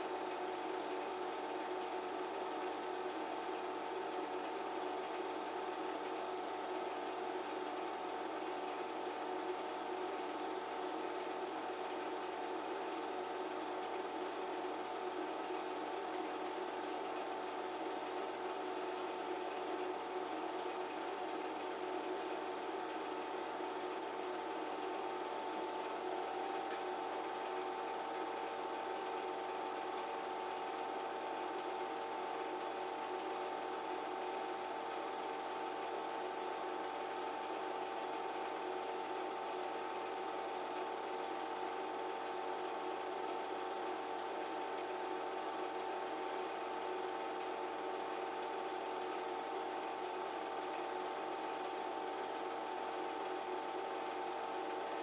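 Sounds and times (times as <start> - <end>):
film projector whirring: 0.0 - 55.0.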